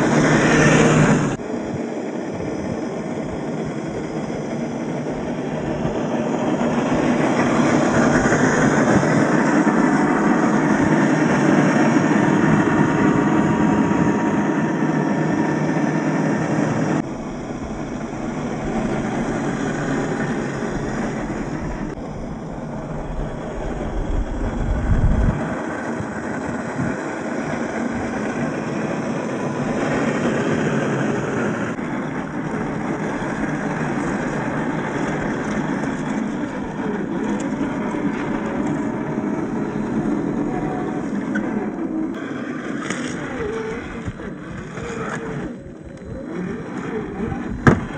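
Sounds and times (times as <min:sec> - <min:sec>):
tyres on rough terrain: 0:00.0 - 0:47.9
low rumble: 0:17.0 - 0:30.3
toy car motor and gears whirring: 0:31.8 - 0:47.9.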